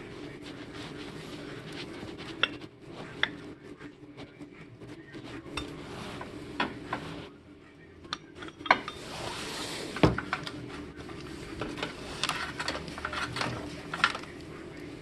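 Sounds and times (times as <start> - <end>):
metal tools clinking: 12.2 - 14.3.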